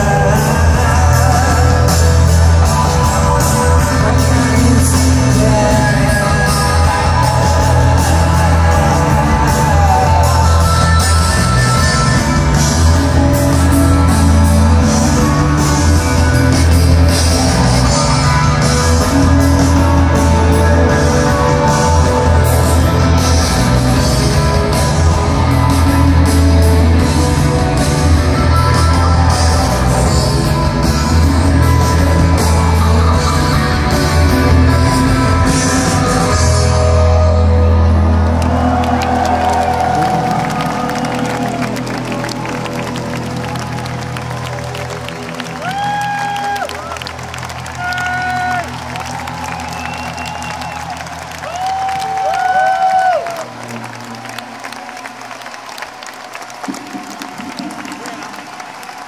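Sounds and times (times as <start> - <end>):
heavy bass line: 0.0 - 45.1
electric guitars: 0.0 - 59.0
drum beat: 56.5 - 58.8.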